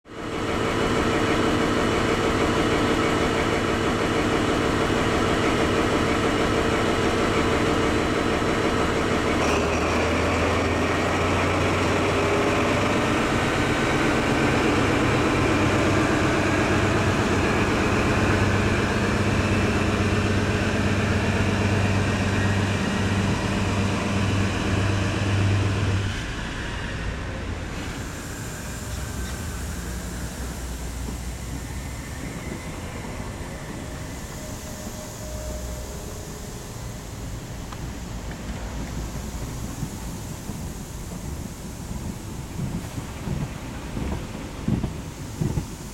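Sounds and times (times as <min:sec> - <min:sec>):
train diesel engine: 0:00.0 - 0:45.9
train coaches rolling past: 0:00.1 - 0:45.9.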